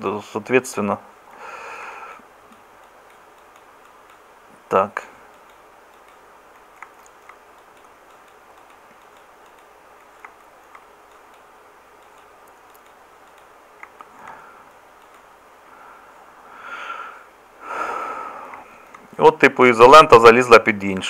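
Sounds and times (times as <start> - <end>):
microphone hiss: 0.0 - 21.0
computer mouse clicks: 2.5 - 4.3, 5.3 - 15.3, 18.5 - 19.2.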